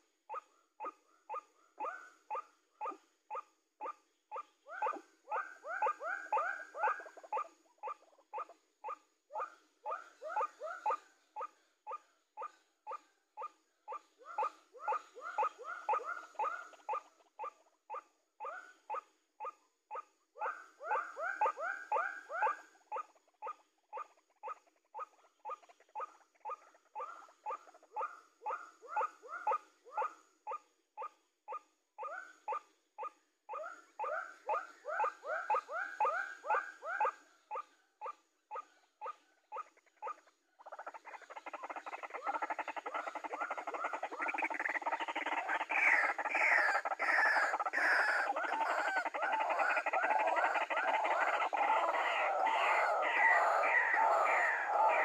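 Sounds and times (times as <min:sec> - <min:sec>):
chorus of overlapping bird calls: 0:00.0 - 0:55.0
waterhen croaking calls: 0:40.6 - 0:55.0.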